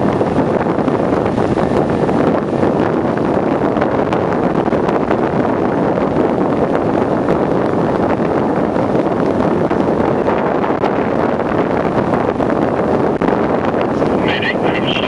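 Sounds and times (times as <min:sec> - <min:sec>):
wind blowing across microphone: 0:00.0 - 0:15.0.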